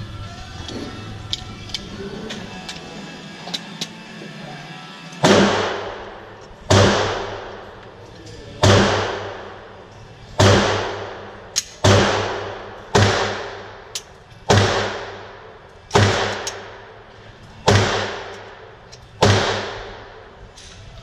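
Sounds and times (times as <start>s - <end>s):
pistol shots echoing: 5.2s - 7.7s, 8.6s - 9.8s, 10.4s - 17.0s, 17.6s - 20.2s.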